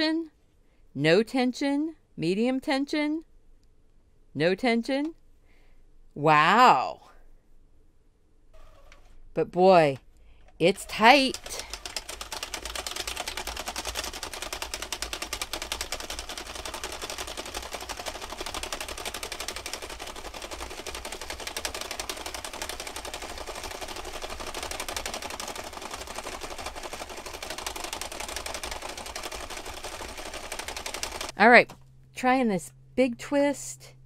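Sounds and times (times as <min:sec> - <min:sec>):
knitting machine needles clicking: 0:10.6 - 0:31.4.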